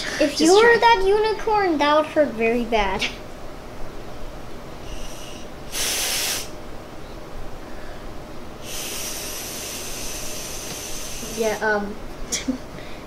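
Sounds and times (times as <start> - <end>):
breath blown into balloon valve: 4.8 - 6.6, 8.6 - 11.6.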